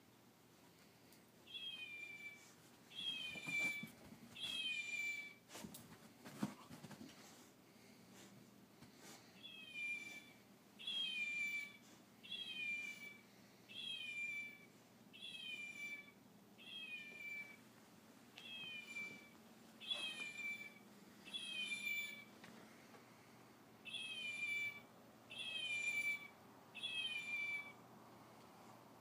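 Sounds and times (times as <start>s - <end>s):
toy meowing: 11.0s - 13.2s, 15.2s - 17.6s, 18.4s - 22.2s.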